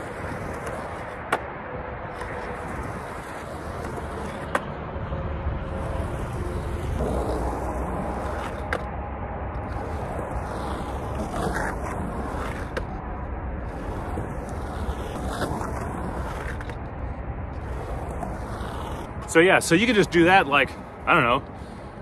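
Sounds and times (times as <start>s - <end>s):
skateboard clicks: 0.0s - 4.8s, 5.8s - 8.9s, 9.6s - 13.0s, 13.7s - 16.9s
highway traffic noise: 0.0s - 22.0s
skateboard rolling over concrete: 0.0s - 22.0s.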